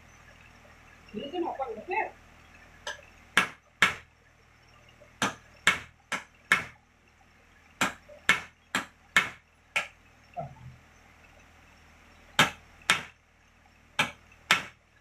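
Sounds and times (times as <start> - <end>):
sharp knocks: 7.8 - 10.5, 12.4 - 13.2, 14.0 - 14.8.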